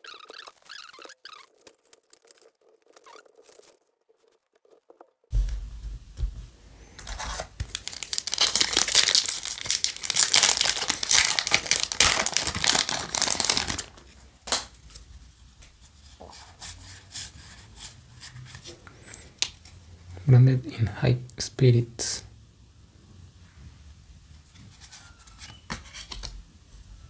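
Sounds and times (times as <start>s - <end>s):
foil pack tearing and crinkling: 7.0s - 14.7s.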